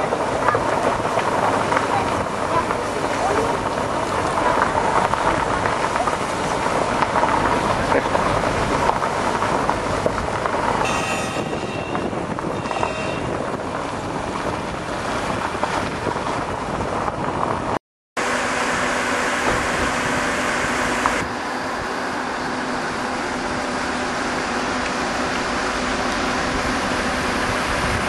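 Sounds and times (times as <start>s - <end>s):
car engine: 0.0s - 28.0s
wind and road noise: 0.0s - 28.0s
high whistle: 10.8s - 13.3s
steady hum: 18.2s - 28.0s.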